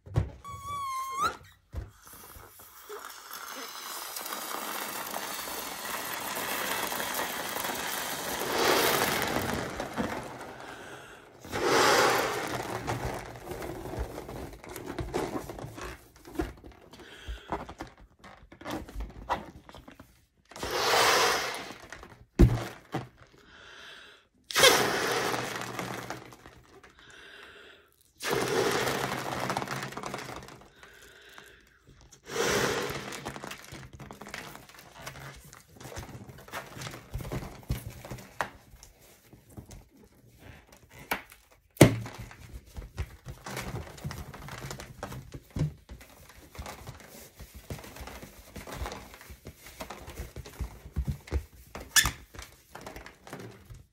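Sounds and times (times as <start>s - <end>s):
rubbery latex creaks: 0.3s - 19.7s, 28.2s - 38.5s
balloon being blown up by mouth: 0.4s - 16.0s, 20.5s - 23.2s, 24.4s - 27.1s, 27.9s - 38.4s.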